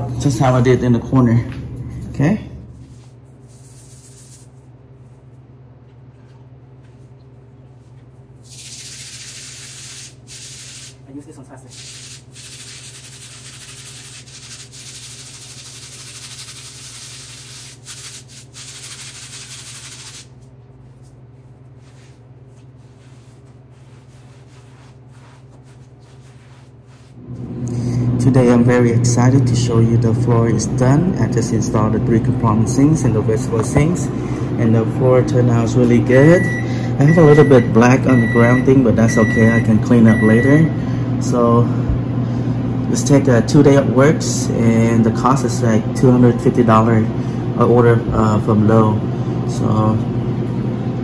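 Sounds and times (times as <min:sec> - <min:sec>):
steady low hum: 0:00.0 - 0:51.0
sponge scrubbing floor tile: 0:11.8 - 0:27.2.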